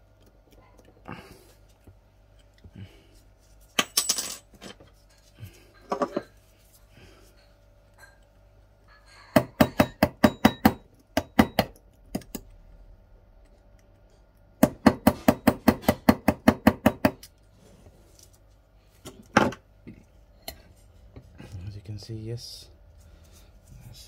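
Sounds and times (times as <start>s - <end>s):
hammer tapping metal tool: 9.3s - 12.4s, 14.6s - 17.3s.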